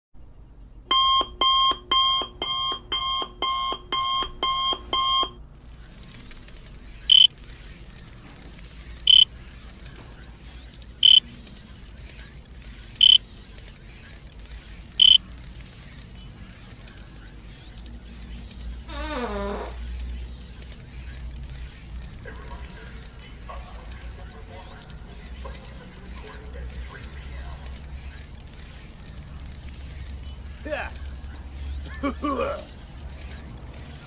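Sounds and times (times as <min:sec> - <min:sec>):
electronic alarm beeping: 0:00.9 - 0:05.4, 0:07.1 - 0:07.3, 0:09.1 - 0:09.3, 0:11.0 - 0:11.3, 0:13.0 - 0:13.2, 0:15.0 - 0:15.2
short high beeps: 0:15.0 - 0:15.2.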